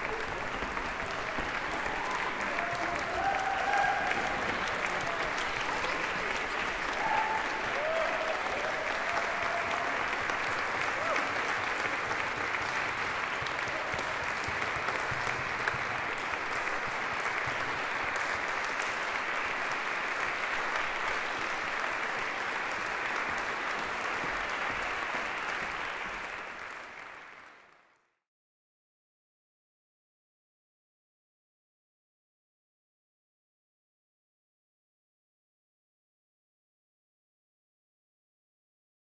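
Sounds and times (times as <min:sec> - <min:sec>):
audience applauding: 0:00.0 - 0:28.1.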